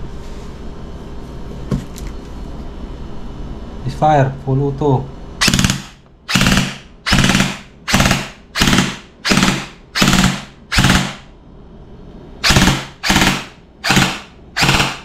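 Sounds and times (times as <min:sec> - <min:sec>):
airsoft gun firing bursts: 0:05.4 - 0:11.2, 0:12.4 - 0:15.0.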